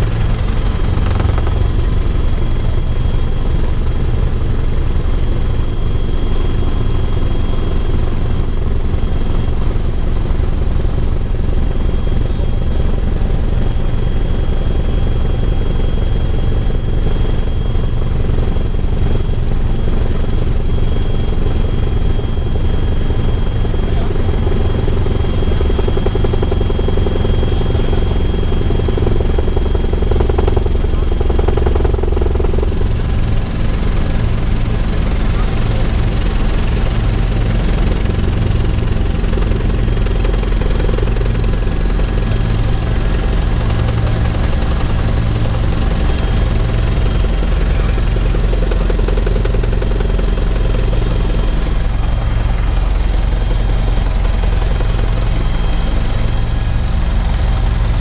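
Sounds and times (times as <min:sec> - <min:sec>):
high-pitched whines: 0:00.0 - 0:04.3
helicopter rotor and engine drone: 0:00.0 - 0:58.0.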